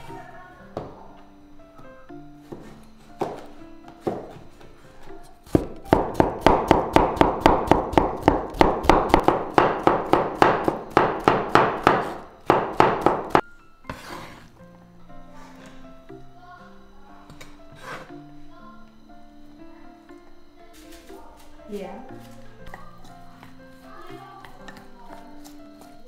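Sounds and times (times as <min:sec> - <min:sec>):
knife chopping on wooden board: 0:05.5 - 0:14.2.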